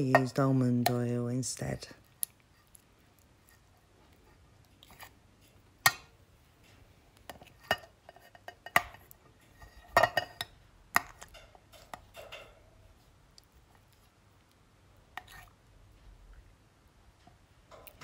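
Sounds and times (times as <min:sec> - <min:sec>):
spoon clinking on metal pan: 0:09.8 - 0:12.6.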